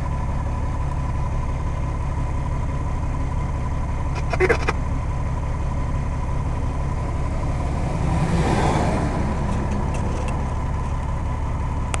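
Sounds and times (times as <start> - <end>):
truck engine droning: 0.0 - 12.0
truck passing with rushing sound: 6.9 - 10.8.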